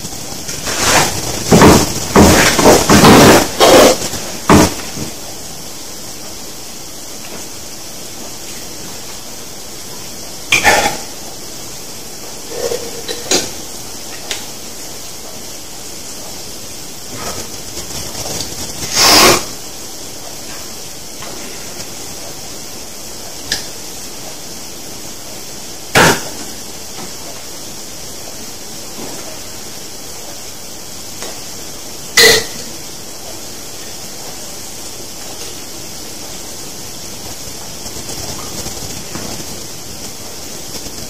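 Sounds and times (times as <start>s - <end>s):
faint steady hiss: 0.0s - 41.0s
can cracking open hiss: 17.2s - 19.6s.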